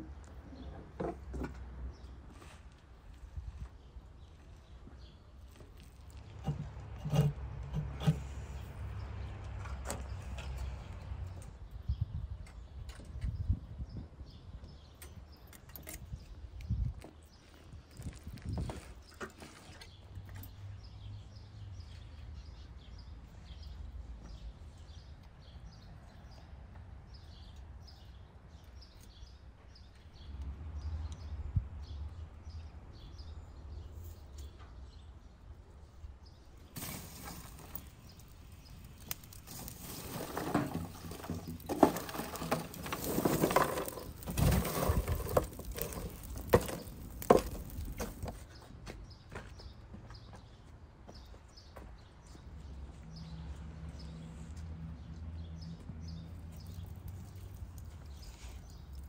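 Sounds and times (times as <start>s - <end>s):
wood fire crackling and popping: 36.8s - 48.4s.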